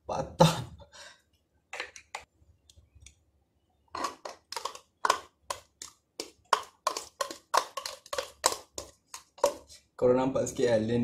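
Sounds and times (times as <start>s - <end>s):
yogurt squelching from cup: 3.9s - 9.9s.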